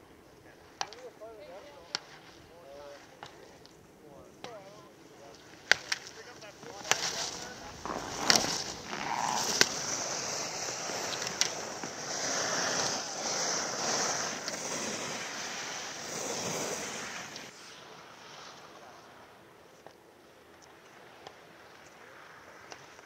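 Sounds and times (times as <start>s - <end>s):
skis scraping on snow: 0.8s - 19.9s
sharp ski clacks: 5.3s - 17.6s.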